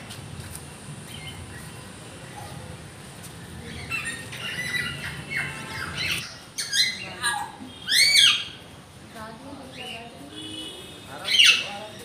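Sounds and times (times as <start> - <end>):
cockatiels chirping and squawking: 3.6 - 8.6.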